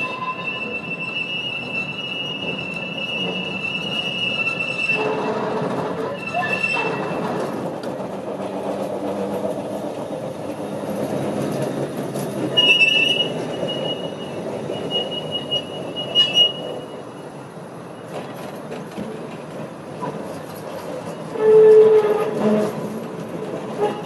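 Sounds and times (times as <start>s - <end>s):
high wheel squeal: 0.0s - 7.5s, 12.4s - 18.1s
tram wheels rumbling: 0.0s - 24.0s.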